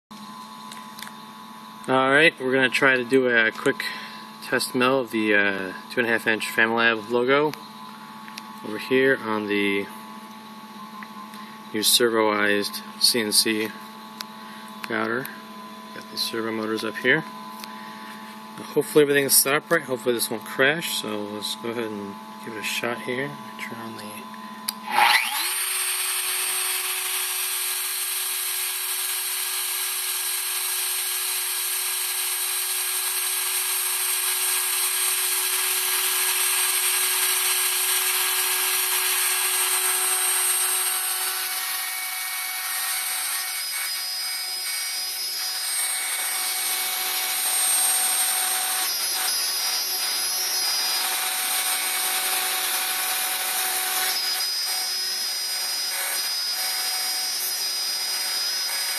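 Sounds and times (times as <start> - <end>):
wood router whining: 0.1 - 58.9.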